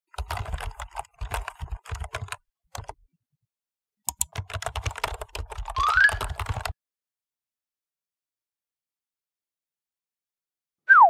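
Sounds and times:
fast keyboard typing: 0:00.1 - 0:03.0, 0:04.1 - 0:06.8.

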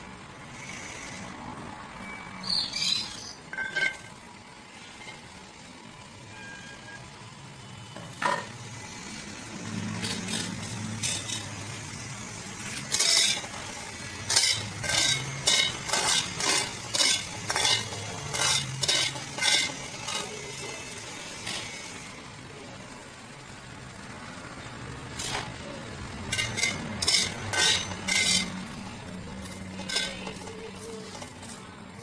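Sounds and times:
spatula scraping steel pan: 0:12.6 - 0:21.9, 0:26.2 - 0:31.6.

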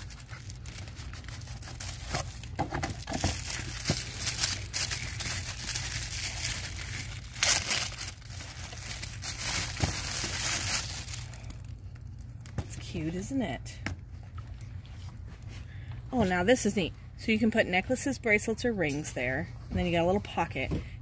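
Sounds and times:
plastic bag crinkling: 0:00.0 - 0:12.6.

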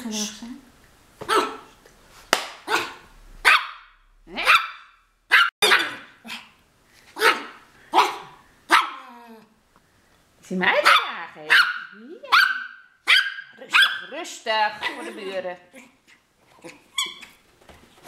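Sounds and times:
small dog barking: 0:01.2 - 0:01.7, 0:02.6 - 0:06.6, 0:07.2 - 0:09.2, 0:10.8 - 0:14.1.

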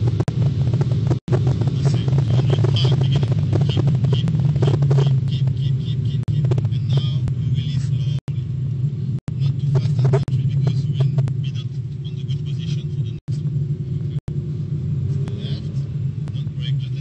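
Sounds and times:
car engine drone: 0:00.0 - 0:17.0
road noise: 0:00.0 - 0:17.0.

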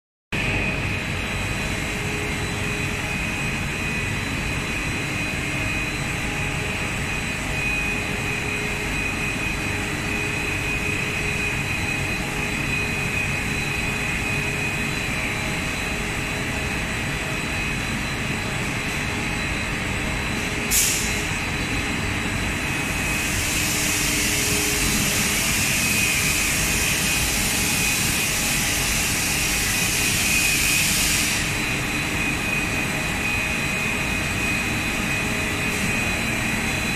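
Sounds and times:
extrusion machine hum and whine: 0:00.4 - 0:36.9
loud steady hiss: 0:20.7 - 0:21.3.

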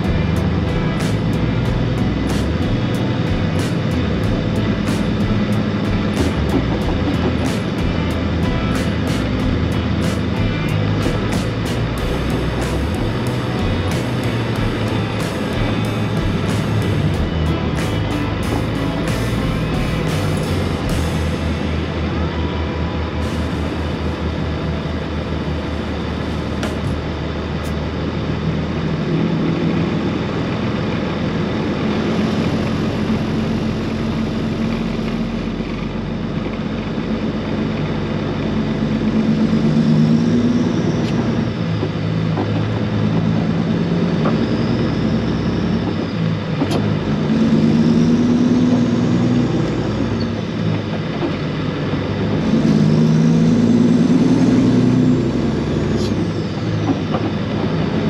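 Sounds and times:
diesel truck engine shifting gears: 0:00.0 - 0:58.0
road noise: 0:00.0 - 0:58.0.

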